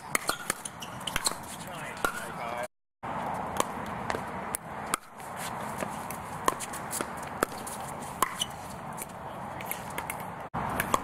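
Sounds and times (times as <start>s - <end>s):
shoes shuffling on hard court: 0.1s - 2.3s, 5.1s - 11.0s.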